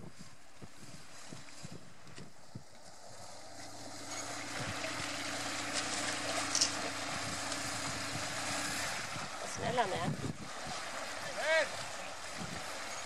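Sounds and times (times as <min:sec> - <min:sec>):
rushing water: 0:00.0 - 0:13.0
wind noise: 0:00.0 - 0:13.0
splash from wading: 0:02.8 - 0:13.0.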